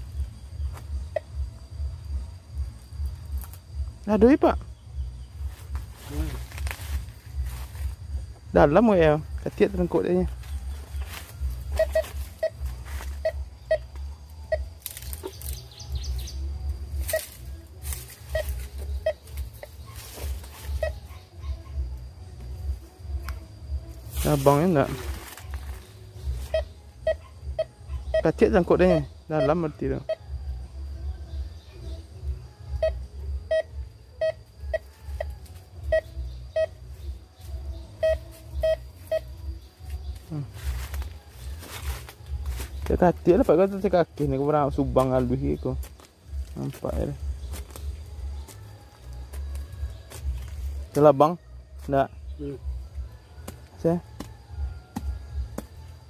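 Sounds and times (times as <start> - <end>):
metal detector beeps: 10.9 - 15.4, 18.2 - 19.7, 26.2 - 30.2, 32.8 - 36.9, 38.0 - 39.5
metal detector short beeps: 11.7 - 12.6, 13.2 - 13.9, 32.8 - 35.3, 35.9 - 36.8, 38.0 - 39.4.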